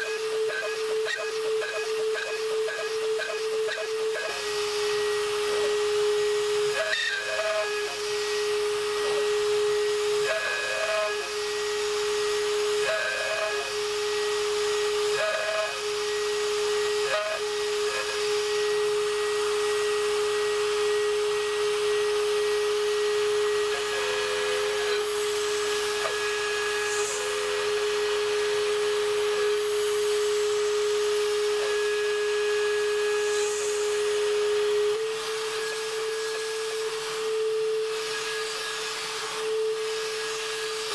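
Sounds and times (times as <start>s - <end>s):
router whining while cutting metal: 0.0s - 40.9s.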